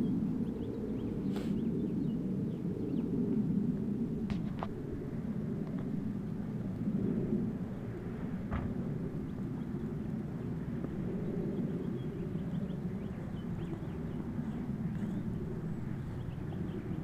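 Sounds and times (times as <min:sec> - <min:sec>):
small birds chirping: 0:00.0 - 0:03.1, 0:09.1 - 0:17.0
low outdoor rumble: 0:00.0 - 0:17.0.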